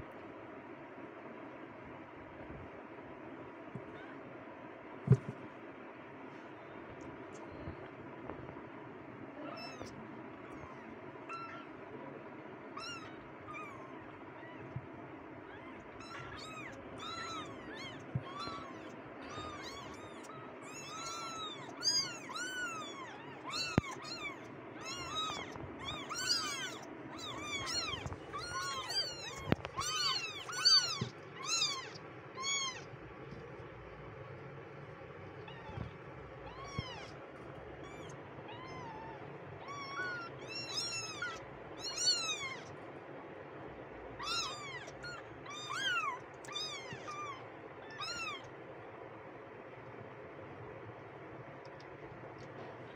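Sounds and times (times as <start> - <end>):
kittens mewing: 9.3 - 11.9, 12.7 - 33.7, 35.3 - 42.8, 43.8 - 48.5.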